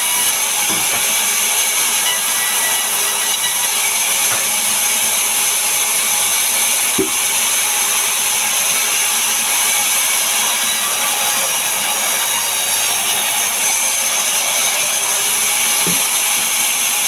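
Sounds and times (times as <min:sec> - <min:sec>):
band saw blade hissing: 0:00.0 - 0:17.0
sawmill knock: 0:00.2 - 0:10.2, 0:15.0 - 0:16.8.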